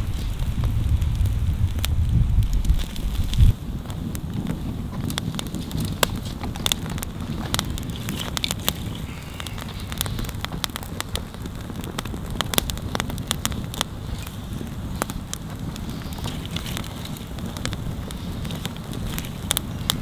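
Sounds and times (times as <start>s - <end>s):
campfire crackling and popping: 0.0s - 20.0s
low fire rumble: 0.0s - 20.0s.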